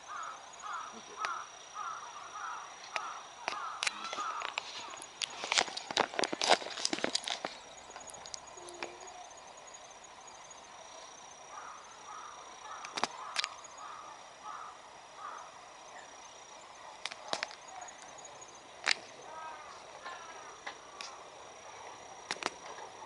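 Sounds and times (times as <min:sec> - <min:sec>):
faint short calls: 0:00.6 - 0:05.1
sharp clicks: 0:12.8 - 0:13.6, 0:17.0 - 0:17.6, 0:22.2 - 0:22.7.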